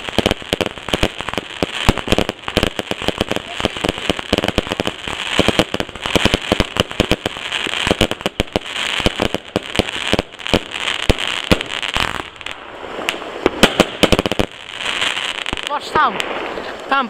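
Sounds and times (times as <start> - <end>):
fireworks cracking and popping: 0.0 - 17.0
loud firework bang: 13.5 - 14.4.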